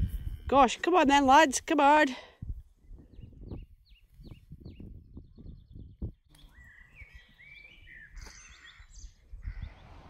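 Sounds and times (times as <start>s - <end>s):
wind rumble on microphone: 0.0s - 1.4s, 2.2s - 10.0s
bird singing whistled notes: 2.8s - 9.8s.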